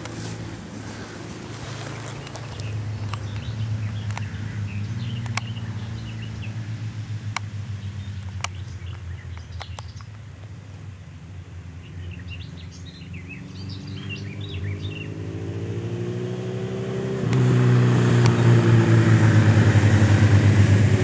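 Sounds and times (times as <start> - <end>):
birds chirping: 0.0 - 6.7, 7.4 - 10.3, 11.7 - 16.9
motorcycle engine running: 0.0 - 10.0, 16.8 - 21.0.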